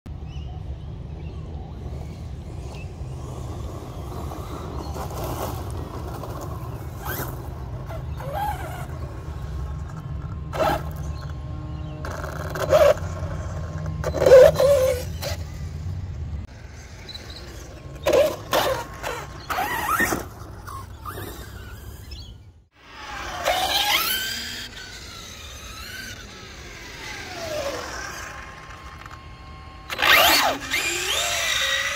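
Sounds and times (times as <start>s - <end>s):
electric rc car motor whine: 1.8s - 16.0s, 16.7s - 31.9s
tyres scrabbling on gravel: 4.0s - 11.3s, 17.8s - 22.0s.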